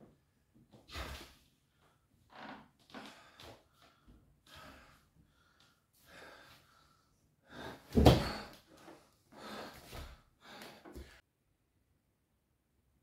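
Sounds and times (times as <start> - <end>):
man gasping and panting: 3.0 - 11.2.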